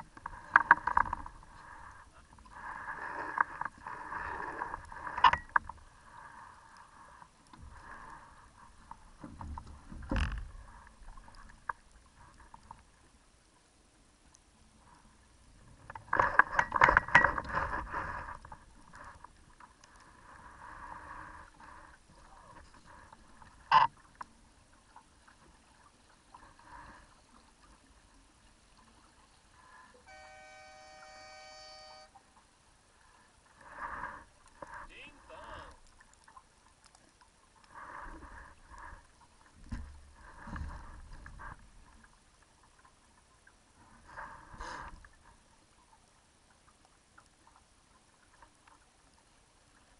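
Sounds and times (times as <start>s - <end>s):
water lapping against hull: 0.0s - 49.9s
steady multi-pitch tone: 30.0s - 32.2s.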